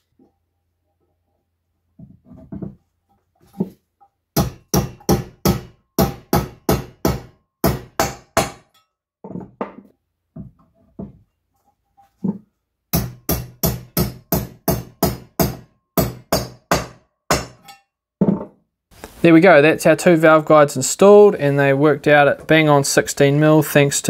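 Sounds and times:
mallet striking metal tool: 0:04.4 - 0:08.8, 0:13.0 - 0:17.9.

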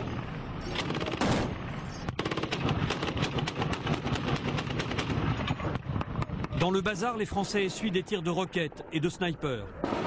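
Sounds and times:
automatic machine-gun fire: 0:00.8 - 0:01.5, 0:02.2 - 0:05.4.

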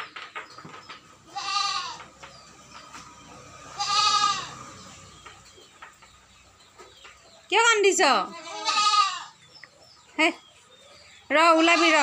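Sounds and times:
goat bleating: 0:01.3 - 0:02.0, 0:03.7 - 0:04.6, 0:08.2 - 0:09.4, 0:11.4 - 0:12.0.

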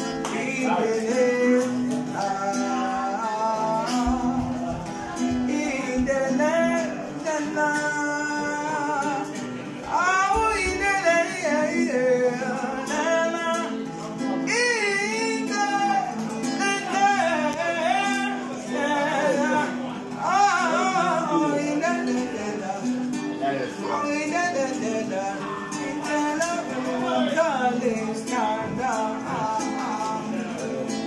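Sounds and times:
acoustic guitar: 0:00.0 - 0:31.0
man singing: 0:00.0 - 0:31.0.

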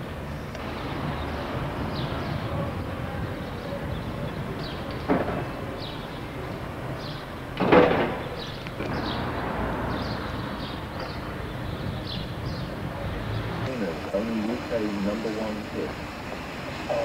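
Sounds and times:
steady background rumble: 0:00.0 - 0:17.0
loud short bang: 0:07.6 - 0:09.4.

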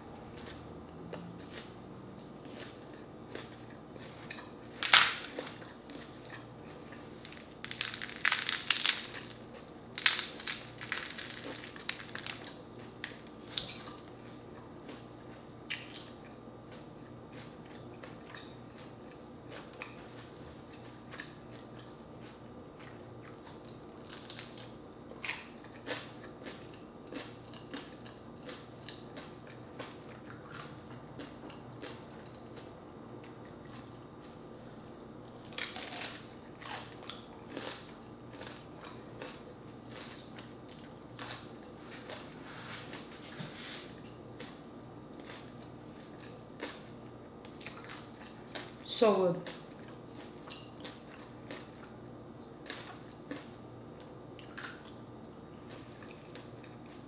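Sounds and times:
crispy pork skin crunching: 0:02.5 - 0:13.7, 0:17.3 - 0:32.7, 0:35.3 - 0:43.1.

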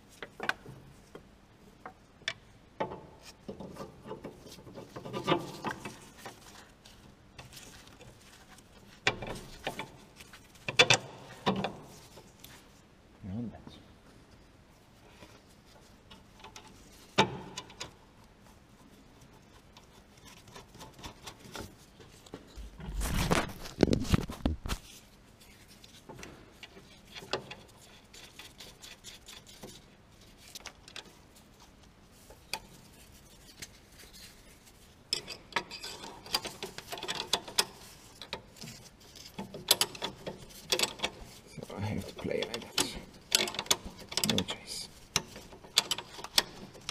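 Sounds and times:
hand tools clicking and clanking: 0:35.1 - 0:46.9.

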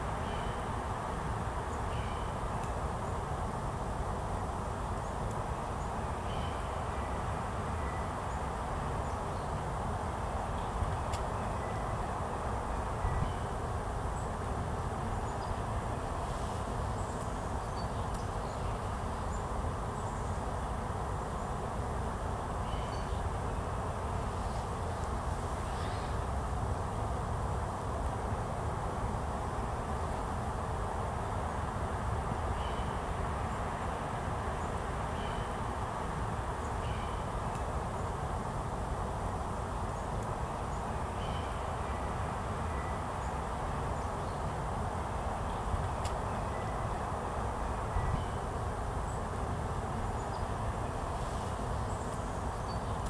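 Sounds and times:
faint bird chirps: 0:25.6 - 0:26.2.

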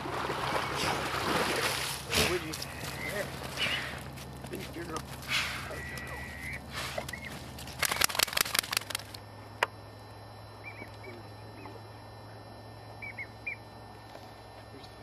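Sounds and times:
steady low hum: 0:00.0 - 0:15.0
whistled duck calls: 0:02.6 - 0:04.0, 0:05.6 - 0:08.1, 0:13.0 - 0:13.6.

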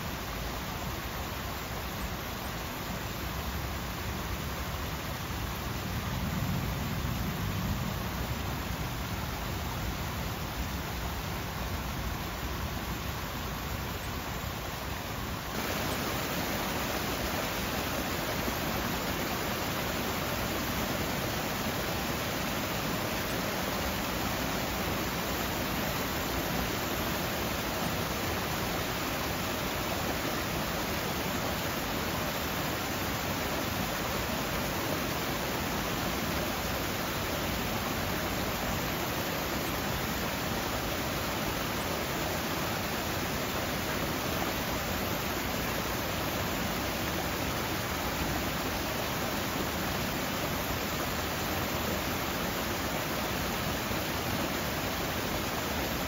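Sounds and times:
fountain water splashing over rocks: 0:00.0 - 0:56.0.

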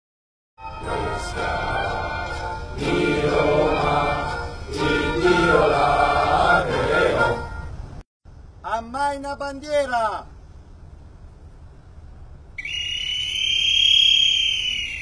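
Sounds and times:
choir singing sustained chords: 0:00.6 - 0:08.0.

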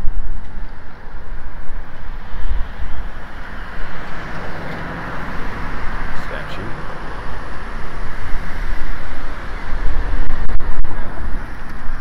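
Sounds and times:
car tyre and road noise: 0:00.0 - 0:12.0.

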